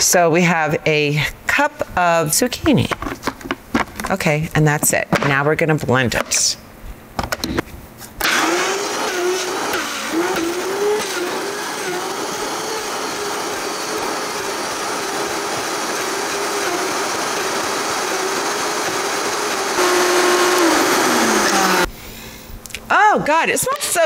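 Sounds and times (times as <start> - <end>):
blender grinding: 8.2 - 21.9.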